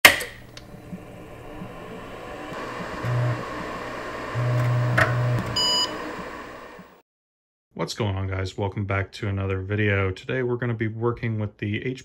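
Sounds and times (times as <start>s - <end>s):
low electrical buzz: 0.4s - 6.9s
short electronic beep: 5.6s - 6.0s.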